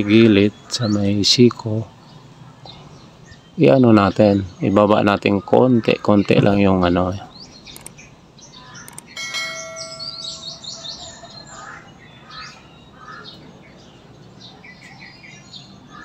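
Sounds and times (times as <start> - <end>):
birds chirping: 0.0 - 16.0
click: 7.7 - 8.0
bell-like chime: 9.1 - 11.4.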